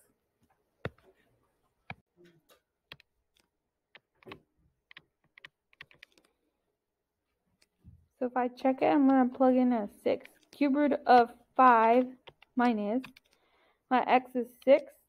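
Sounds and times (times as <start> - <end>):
stylus tapping on screen: 10.1 - 13.3.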